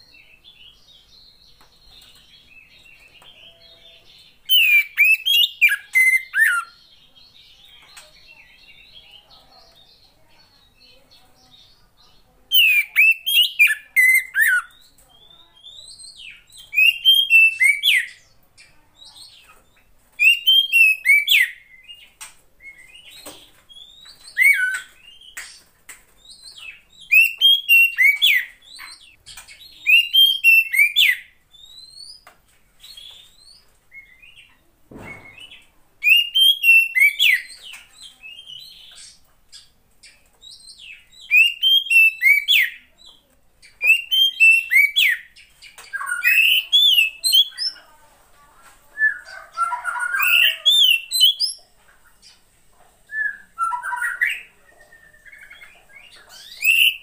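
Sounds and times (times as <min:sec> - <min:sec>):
magpie-robin whistling: 0:04.4 - 0:06.8, 0:12.5 - 0:14.8, 0:15.6 - 0:18.2, 0:20.2 - 0:22.0, 0:23.7 - 0:25.4, 0:26.4 - 0:29.2, 0:29.8 - 0:34.4, 0:35.1 - 0:39.6, 0:40.5 - 0:42.8, 0:43.8 - 0:47.8, 0:49.0 - 0:51.6, 0:53.1 - 0:57.0
single knock: 0:34.9 - 0:35.5.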